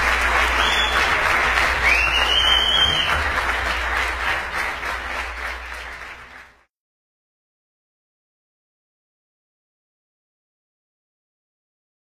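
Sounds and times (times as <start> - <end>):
crowd applauding: 0.0 - 6.7
loud whistle: 0.4 - 3.4.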